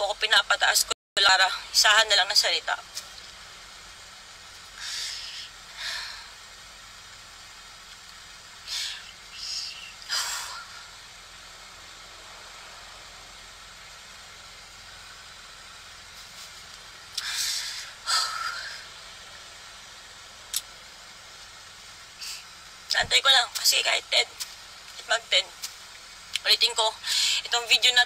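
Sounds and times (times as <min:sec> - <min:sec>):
faint steady hiss: 0:00.0 - 0:28.0
woman breathing hard: 0:04.8 - 0:06.4, 0:17.2 - 0:18.9.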